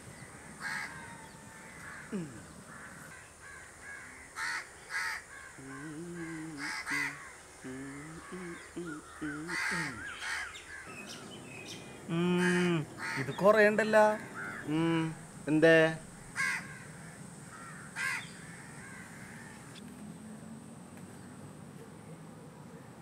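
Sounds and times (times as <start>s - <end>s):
crows cawing: 0.0s - 7.4s, 8.0s - 11.2s, 12.0s - 15.2s, 16.3s - 19.8s
small birds chirping: 0.0s - 15.6s, 16.2s - 19.8s
low pitched hum: 5.5s - 13.5s.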